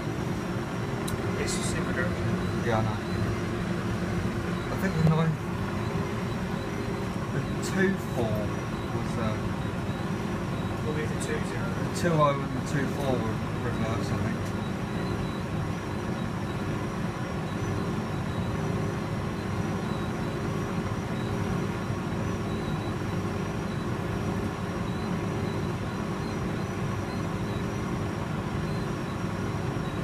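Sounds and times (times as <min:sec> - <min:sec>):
tumble dryer hum: 0:00.0 - 0:30.0
faint high whine: 0:01.0 - 0:16.8.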